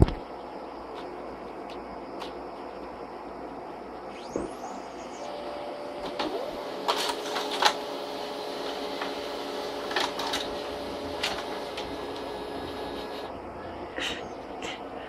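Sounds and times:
laser printer humming: 2.8s - 13.6s
printer paper feed clicks: 6.0s - 13.3s.

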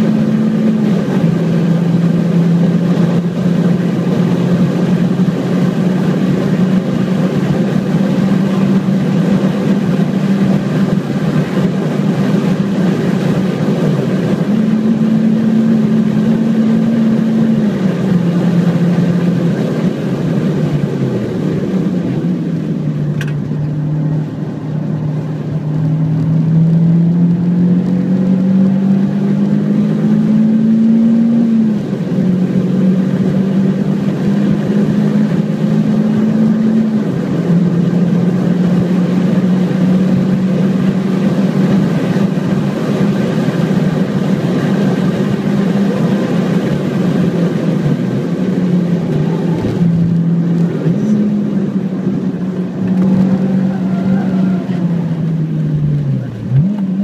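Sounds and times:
car engine at high revs: 0.0s - 57.0s.

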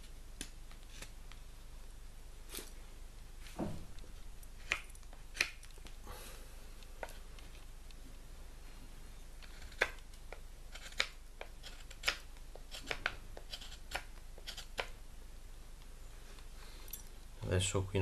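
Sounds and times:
knife cutting wooden stick: 4.6s - 5.8s, 9.4s - 15.0s
knife scraping wood: 9.4s - 10.0s, 10.7s - 15.0s.

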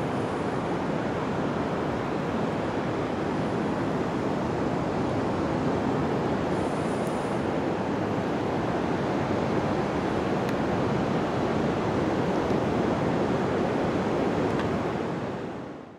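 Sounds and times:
ocean surf washing on beach: 0.0s - 15.9s
wind: 0.0s - 15.9s.

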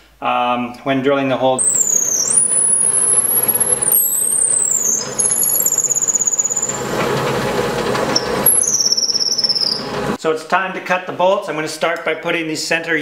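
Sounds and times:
drill bit rasping through wood: 1.6s - 10.2s
drill press squealing: 1.6s - 10.2s.

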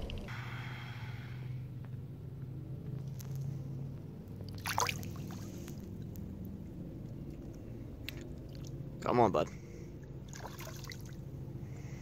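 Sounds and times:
creek water trickling: 4.4s - 6.5s, 7.2s - 9.1s, 9.7s - 11.4s
water splash: 4.6s - 5.4s, 10.3s - 11.2s.

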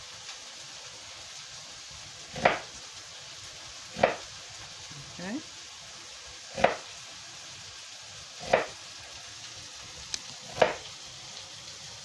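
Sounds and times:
meatballs sizzling in hot oil: 0.0s - 12.0s
knife chopping on wooden board: 2.3s - 2.7s, 3.9s - 4.3s, 6.5s - 6.9s, 8.4s - 8.8s, 10.5s - 10.8s.

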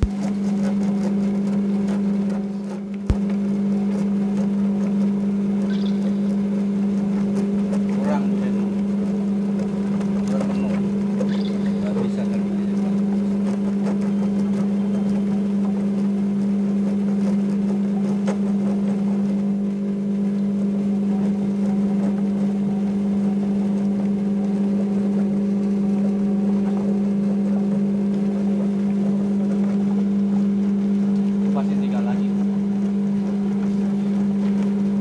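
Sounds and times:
electric motor humming: 0.0s - 35.0s.

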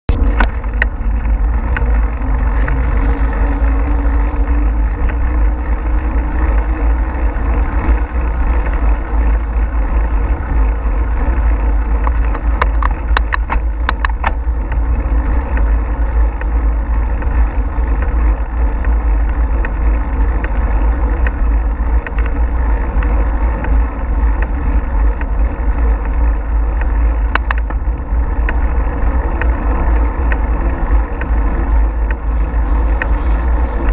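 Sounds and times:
wind buffeting microphone: 0.1s - 33.9s.

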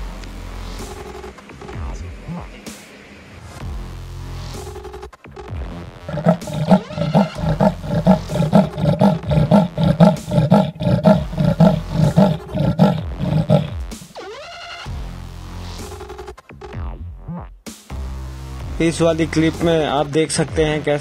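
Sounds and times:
leopard growling: 6.0s - 14.1s.

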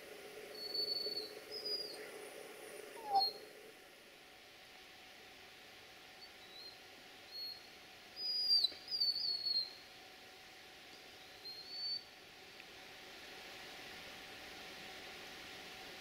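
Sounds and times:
faint steady hiss: 0.0s - 16.0s
high whistle-like animal calls: 0.5s - 2.1s, 2.9s - 3.5s, 6.2s - 9.8s, 11.2s - 12.1s.

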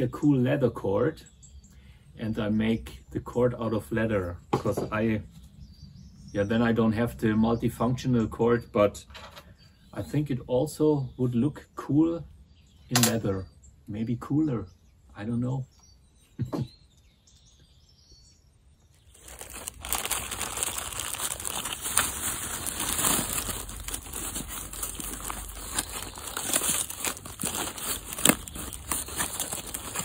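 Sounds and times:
plastic sheeting and bag crinkling: 19.1s - 30.0s.

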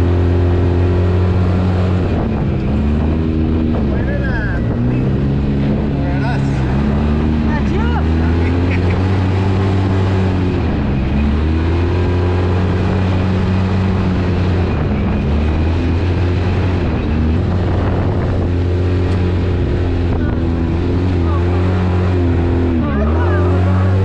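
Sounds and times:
engine revving while driving: 0.0s - 24.0s.

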